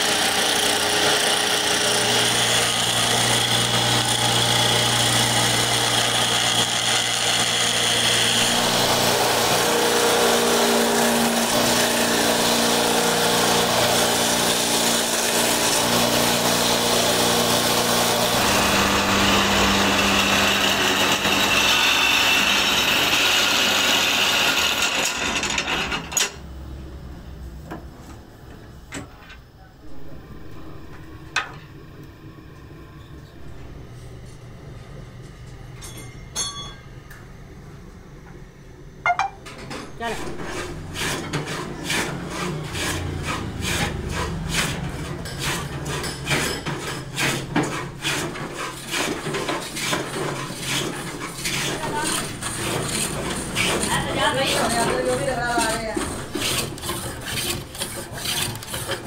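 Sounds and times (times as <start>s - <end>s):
wood lathe humming: 0.0s - 26.1s, 40.2s - 45.6s, 48.0s - 59.0s
wood being scraped by hand: 0.3s - 25.9s, 40.0s - 59.0s.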